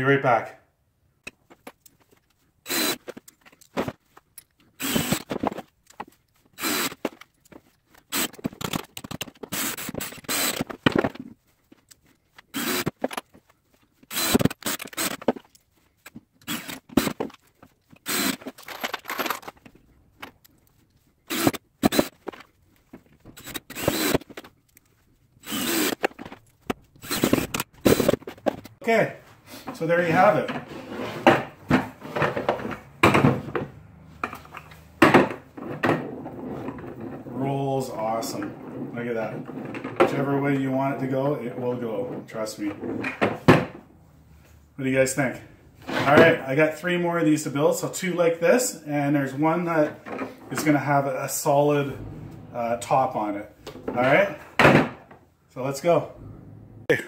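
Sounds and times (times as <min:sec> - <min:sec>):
cordless drill driving screws: 0:02.6 - 0:03.2, 0:04.8 - 0:05.4, 0:06.6 - 0:07.2, 0:08.0 - 0:10.7, 0:12.5 - 0:13.2, 0:14.0 - 0:15.3, 0:16.4 - 0:17.3, 0:18.0 - 0:19.3, 0:21.3 - 0:22.2, 0:23.3 - 0:24.4, 0:25.4 - 0:26.4, 0:27.0 - 0:28.2
screws and washers jangling: 0:18.2 - 0:20.4.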